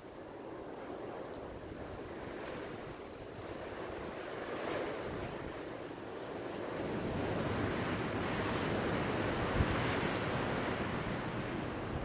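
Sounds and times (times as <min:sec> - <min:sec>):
wind rushing through trees: 0:00.0 - 0:12.0
wind buffeting microphone: 0:06.4 - 0:12.0.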